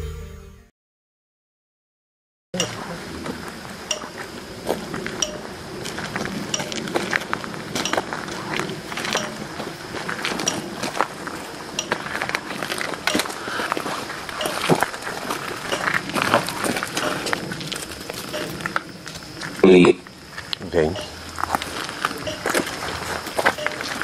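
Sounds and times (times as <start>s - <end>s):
radio static hiss: 2.6s - 24.0s
sharp clicks and blips: 3.9s - 4.3s, 5.1s - 5.6s, 6.4s - 9.5s, 10.3s - 11.0s, 11.7s - 13.4s, 14.4s - 14.9s, 15.6s - 16.1s, 18.3s - 19.2s, 20.9s - 21.2s, 22.2s - 22.7s, 23.5s - 24.0s.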